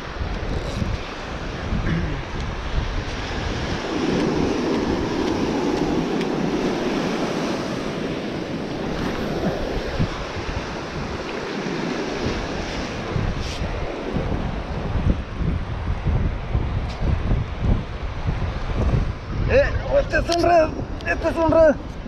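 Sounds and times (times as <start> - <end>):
wave breaking on beach: 0.0 - 15.5
wind buffeting microphone: 0.0 - 22.0.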